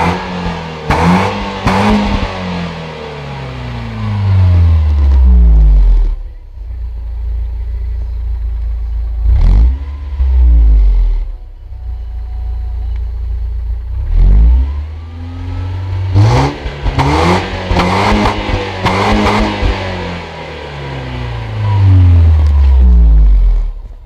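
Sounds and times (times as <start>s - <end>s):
car engine idling and revving: 0.0s - 24.0s.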